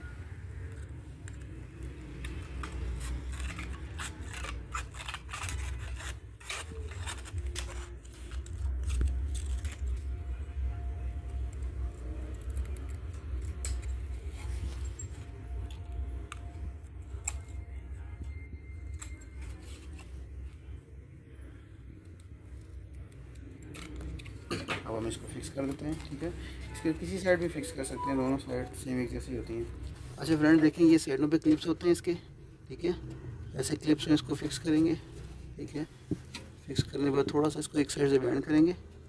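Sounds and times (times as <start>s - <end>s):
scissors snipping sheet: 0.7s - 10.0s.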